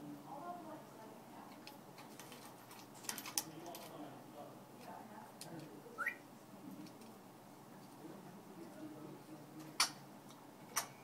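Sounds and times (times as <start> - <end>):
parrot rising whistle: 6.0 - 6.2.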